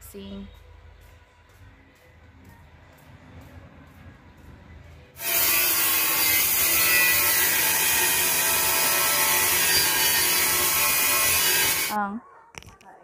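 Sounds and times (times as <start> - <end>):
angle grinder cutting tile: 5.2 - 12.0.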